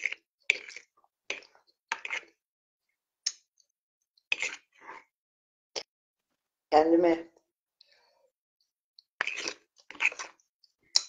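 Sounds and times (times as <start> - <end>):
person eating soup: 0.0 - 2.4, 3.2 - 5.2, 7.8 - 11.0.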